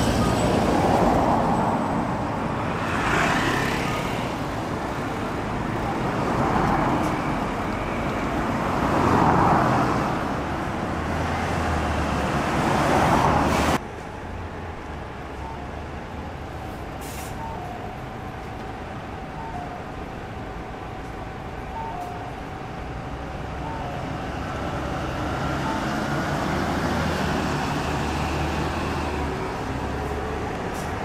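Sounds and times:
bus and cars driving past: 0.0s - 31.0s
steady traffic hum: 0.0s - 31.0s.

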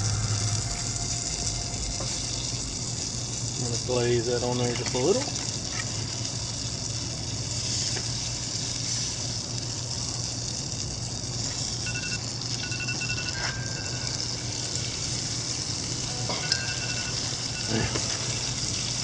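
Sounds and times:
low hum: 0.0s - 3.9s, 12.7s - 19.0s
grill hissing: 0.0s - 19.0s
high two-note chirps: 16.1s - 18.6s.

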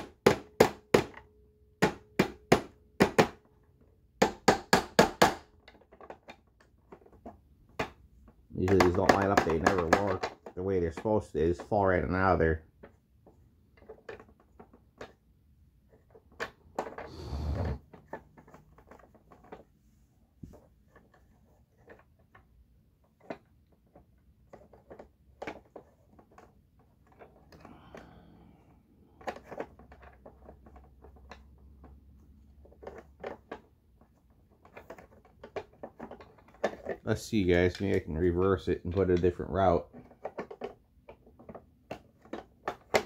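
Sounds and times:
vacuum cleaner parts clicking: 5.6s - 15.2s, 29.0s - 43.0s.

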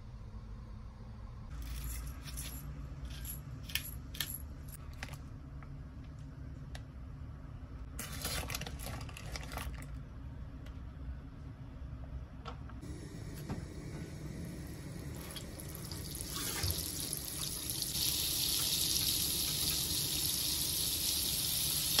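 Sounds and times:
steady low hum: 0.0s - 8.1s, 9.5s - 21.9s
cheese crumbling and rustling: 8.0s - 10.0s.

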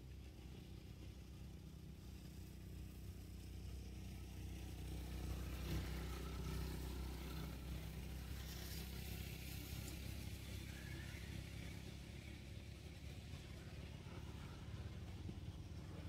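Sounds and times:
faint low engine hum: 0.0s - 16.0s.

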